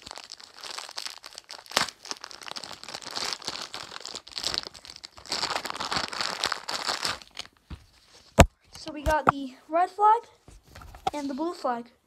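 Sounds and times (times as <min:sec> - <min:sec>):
packaging crinkling and tearing: 0:00.0 - 0:07.6.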